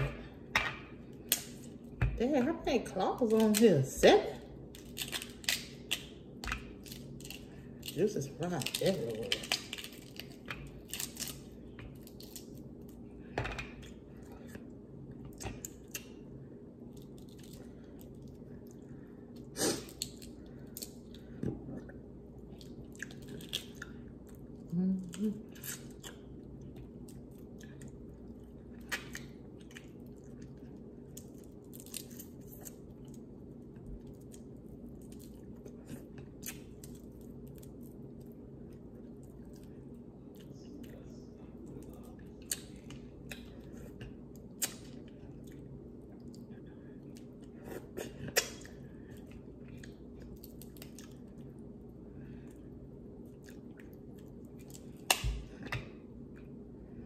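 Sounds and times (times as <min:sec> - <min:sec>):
steady low hum: 0:00.0 - 0:57.0
crab shells cracking: 0:04.7 - 0:08.0, 0:08.6 - 0:12.7
close-up chewing: 0:16.9 - 0:51.7.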